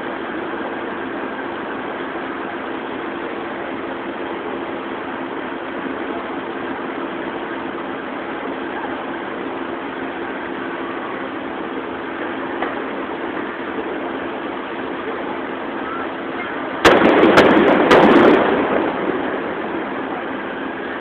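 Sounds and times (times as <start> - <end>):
car engines idling: 0.0 - 21.0
firework booms and cracks: 16.8 - 21.0.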